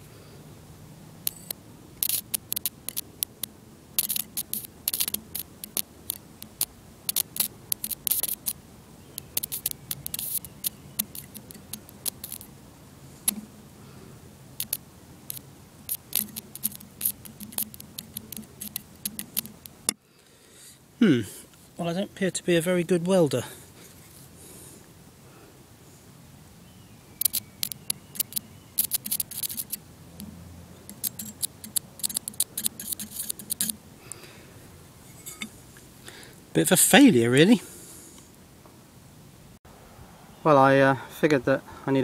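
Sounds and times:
electric arc crackling and clicking: 1.2 - 8.6, 9.2 - 12.5, 14.6 - 20.0, 27.2 - 30.3, 30.9 - 33.8.

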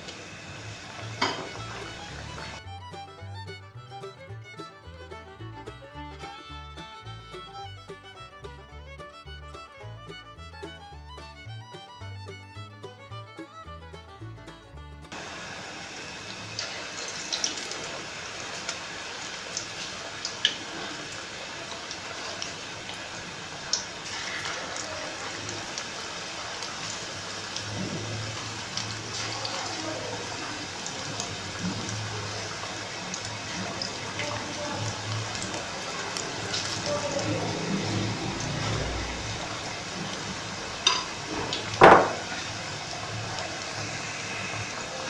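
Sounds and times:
batter sizzling in hot oil: 0.0 - 2.6, 15.1 - 45.0
oil popping: 0.0 - 8.6, 15.1 - 45.0.

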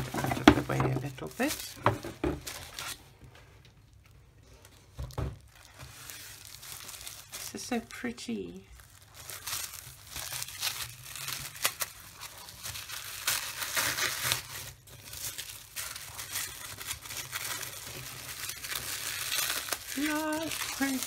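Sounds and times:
tissue paper crinkling and tearing: 0.0 - 3.2, 4.5 - 21.0.

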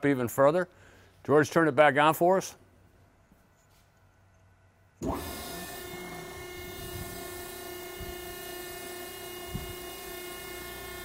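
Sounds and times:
car wash brush machine humming: 5.0 - 11.0.

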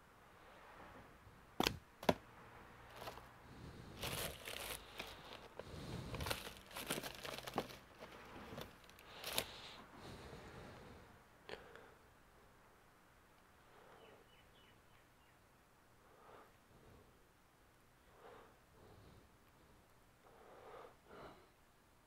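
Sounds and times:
plastic bag crinkling: 2.9 - 3.3, 4.0 - 9.6.

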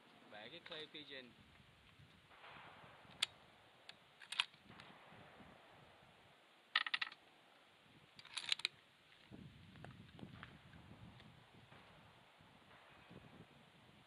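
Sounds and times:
metallic clicks of rifle handling: 3.1 - 4.9, 6.7 - 7.2, 8.1 - 8.8.

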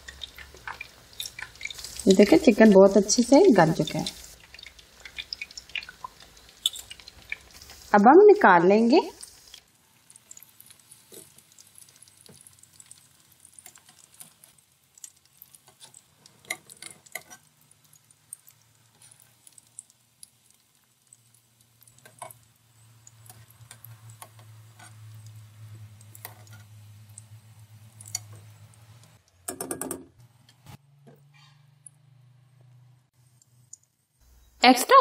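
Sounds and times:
oil dripping: 0.0 - 2.4, 4.2 - 7.9, 9.2 - 29.6.

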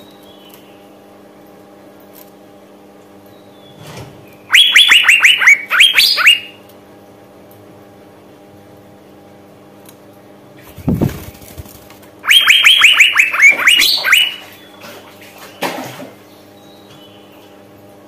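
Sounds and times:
faint steady hum: 0.0 - 18.0
bird calling sharp sliding notes: 4.5 - 6.6, 12.2 - 14.7.

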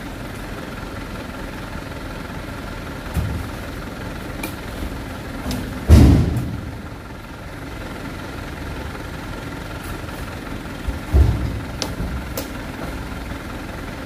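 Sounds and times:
steady low rumble: 0.0 - 14.0
fruit bunches thudding in truck bed: 3.0 - 3.8, 4.4 - 7.0, 10.8 - 13.3.

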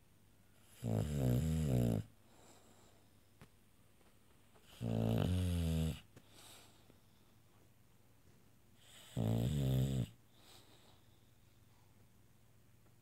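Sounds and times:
dog snoring: 0.6 - 2.1, 4.6 - 6.1, 8.8 - 10.2.

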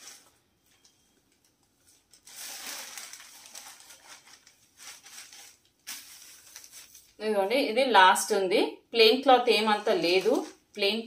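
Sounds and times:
fabric rustling and crinkling: 0.0 - 7.2, 9.6 - 10.8.

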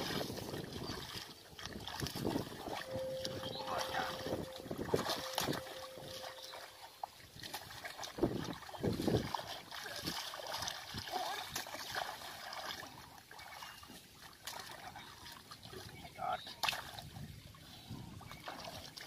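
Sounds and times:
hands splashing in muddy water: 0.0 - 6.7, 7.4 - 13.6.

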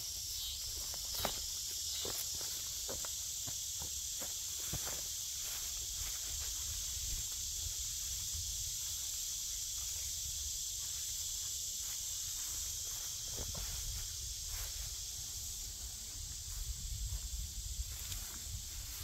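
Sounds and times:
high-pitched hiss: 0.0 - 19.0
rustling of cut grass: 0.1 - 19.0.

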